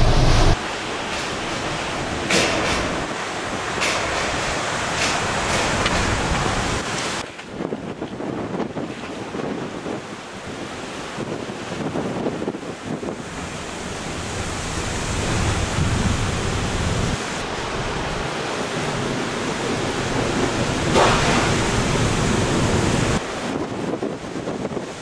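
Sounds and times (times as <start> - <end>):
low rumble: 0.0 - 0.6
sharp loud burst: 0.0 - 0.6
heavy surf pounding: 0.0 - 25.0
wind buffeting microphone: 1.7 - 25.0.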